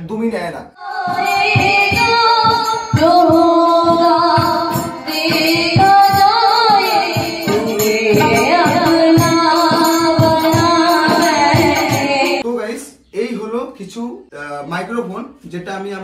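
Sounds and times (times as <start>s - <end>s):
woman singing into microphone: 0.8s - 12.4s
drum strokes: 0.9s - 12.4s.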